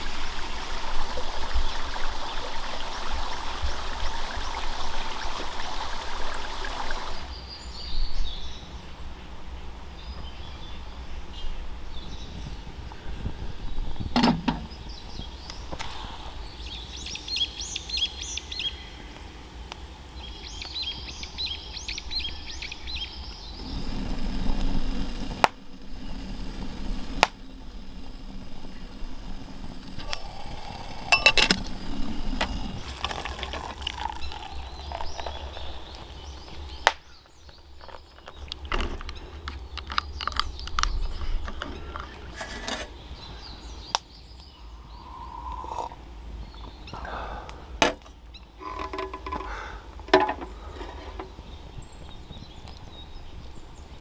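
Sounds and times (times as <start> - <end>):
birds chirping: 0.0 - 54.0
low hum: 18.5 - 53.8.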